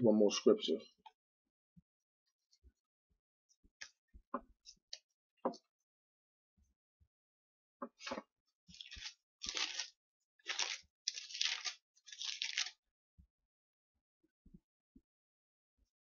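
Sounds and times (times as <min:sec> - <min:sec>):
paper pages turning: 0:08.1 - 0:12.8.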